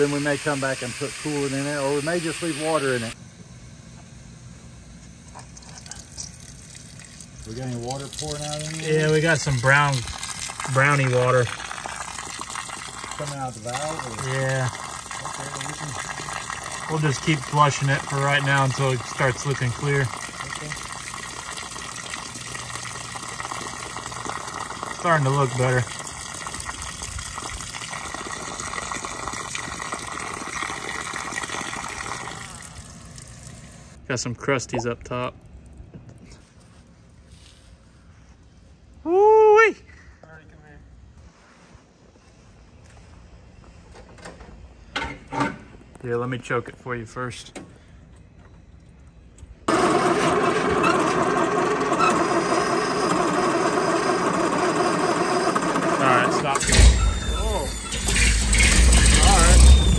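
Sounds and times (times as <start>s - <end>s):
engine running steadily: 0.0s - 34.0s, 47.5s - 59.9s
water gushing and splashing: 6.3s - 33.7s.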